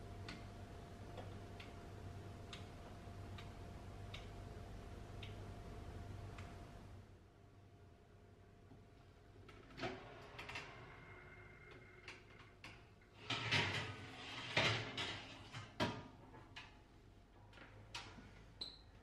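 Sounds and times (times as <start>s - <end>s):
metal baking tray scraping: 13.2s - 15.5s.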